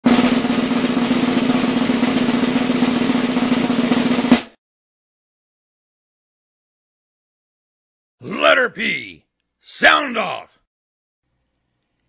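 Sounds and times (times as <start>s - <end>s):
snare drum roll: 0.0s - 4.6s.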